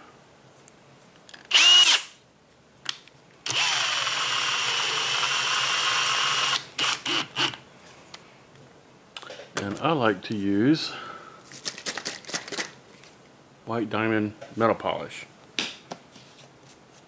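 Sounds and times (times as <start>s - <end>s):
drill whining: 1.5s - 2.2s, 3.4s - 7.6s.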